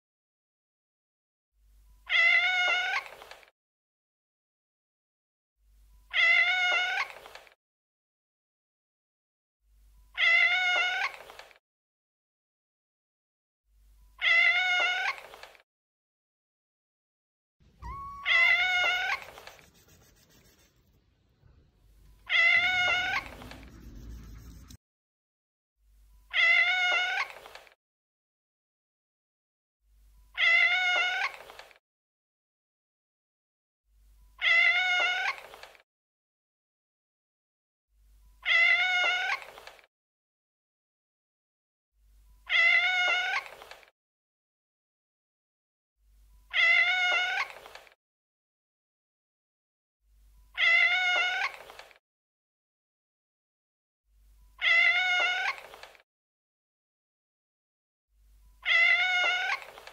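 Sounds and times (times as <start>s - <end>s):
cat meowing: 2.1s - 3.2s, 6.1s - 7.3s, 10.2s - 11.3s, 14.2s - 15.4s, 17.7s - 19.4s, 22.2s - 23.9s, 26.3s - 27.5s, 30.4s - 31.5s, 34.4s - 35.6s, 38.4s - 39.6s, 42.5s - 43.6s, 46.5s - 47.7s, 50.6s - 51.7s, 54.6s - 55.8s, 58.6s - 59.9s.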